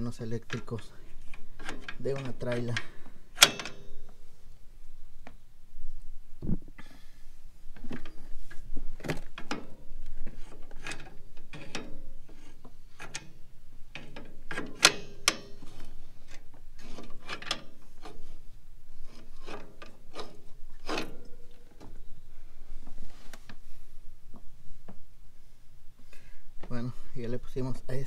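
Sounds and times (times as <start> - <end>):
metal parts scraping and clicking: 0.4 - 4.1, 7.8 - 18.4, 19.0 - 22.0.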